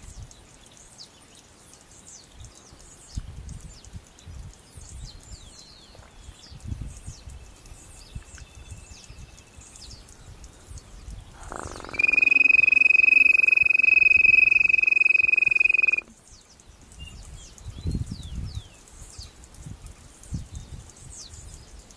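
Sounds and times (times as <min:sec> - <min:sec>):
small birds chirping: 0:08.0 - 0:19.3
high-pitched trill: 0:11.6 - 0:16.0.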